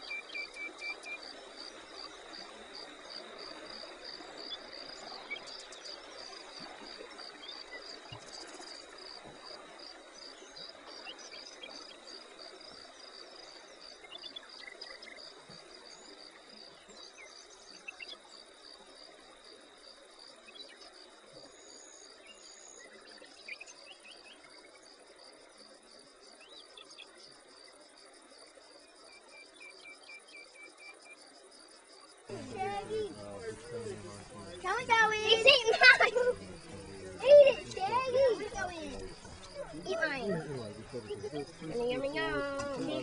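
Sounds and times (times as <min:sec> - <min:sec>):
faint bird chirps: 0:00.0 - 0:43.0
insects chirping: 0:00.0 - 0:43.0.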